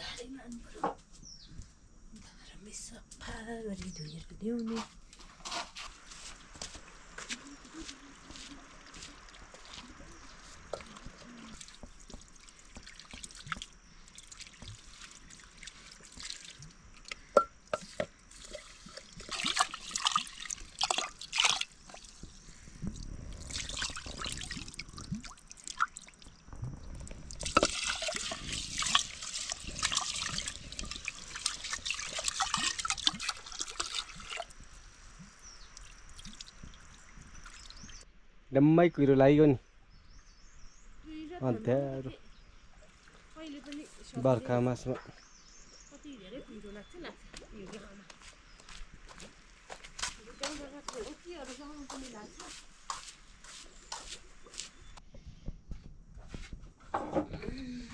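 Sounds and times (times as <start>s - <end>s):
water pouring and splashing: 5.1s - 38.1s, 42.7s - 45.3s.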